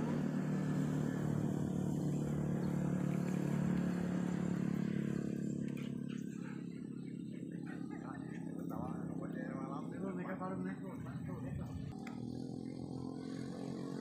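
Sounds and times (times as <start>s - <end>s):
small engine humming: 0.0s - 14.0s.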